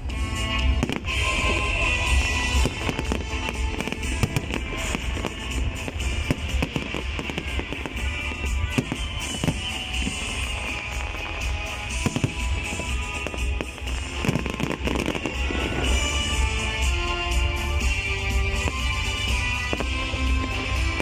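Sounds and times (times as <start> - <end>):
music: 0.0 - 21.0
firework shells bursting: 0.7 - 17.1.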